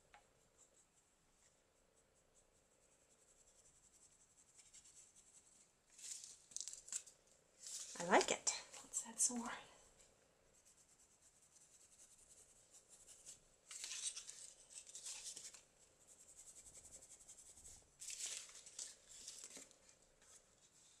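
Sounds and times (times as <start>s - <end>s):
rapid brushing on mesh bag: 10.5s - 13.4s.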